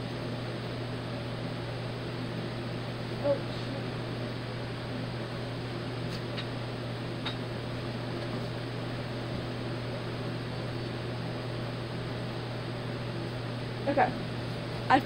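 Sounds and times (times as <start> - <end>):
electric fan humming: 0.0 - 15.0.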